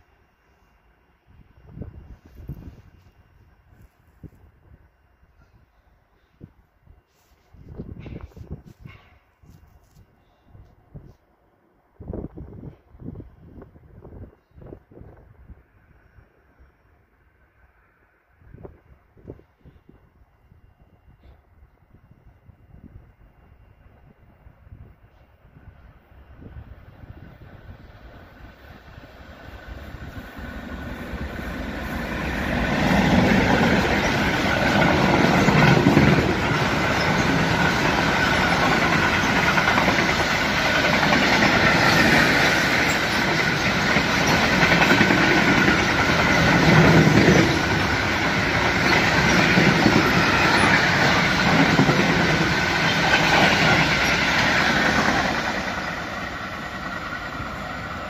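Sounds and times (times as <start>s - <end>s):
freight train passing: 0.0s - 58.0s.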